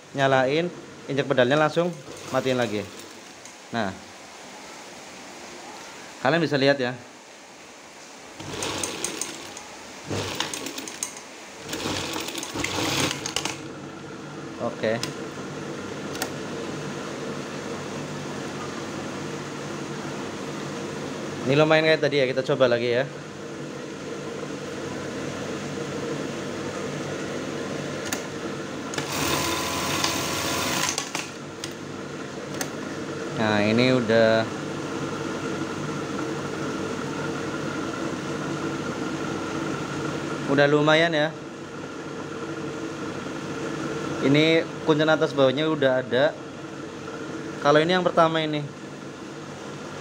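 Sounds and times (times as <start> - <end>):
sewing machine stitching: 2.0 - 3.3, 8.4 - 13.7, 29.0 - 31.4.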